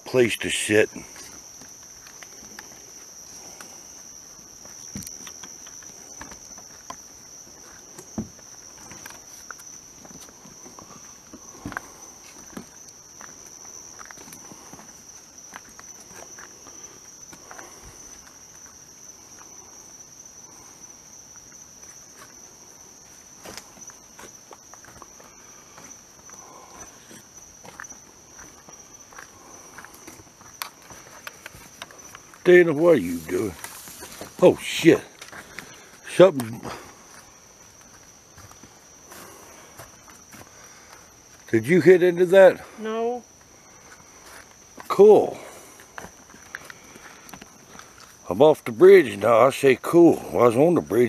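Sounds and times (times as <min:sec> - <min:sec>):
night insects chorus: 0:00.0 - 0:51.0
footsteps: 0:00.9 - 0:19.6, 0:21.3 - 0:41.5, 0:43.8 - 0:48.2
rustle of brush and reeds: 0:01.0 - 0:41.5.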